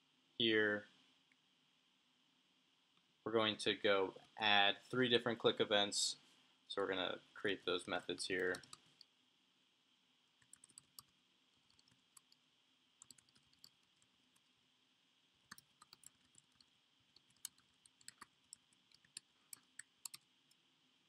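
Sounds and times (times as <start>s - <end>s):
faint keyboard typing: 7.7s - 9.1s, 10.4s - 14.6s, 15.5s - 20.6s.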